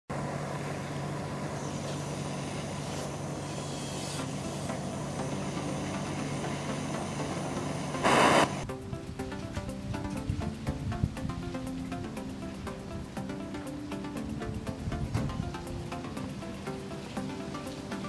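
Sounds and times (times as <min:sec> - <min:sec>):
gas torch flame hissing: 0:01.3 - 0:08.7
loud rush of noise: 0:04.8 - 0:08.6.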